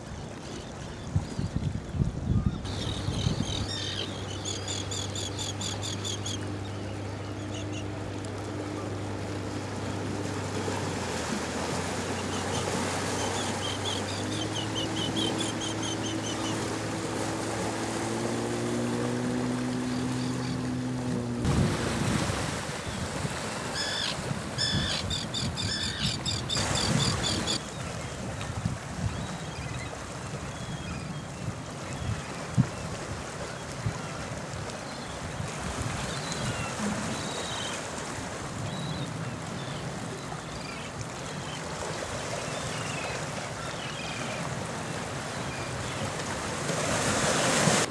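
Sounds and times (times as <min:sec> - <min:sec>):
sea wash: 0:00.0 - 0:47.9
terns calling: 0:02.7 - 0:06.4, 0:23.7 - 0:26.6
low engine drone: 0:02.7 - 0:22.2, 0:36.6 - 0:40.1.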